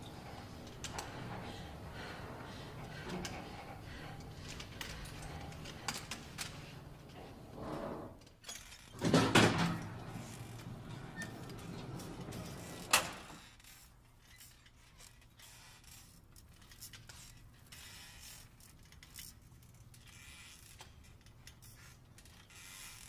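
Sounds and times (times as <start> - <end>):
elevator doors sliding open: 0.0 - 8.2, 8.9 - 13.4.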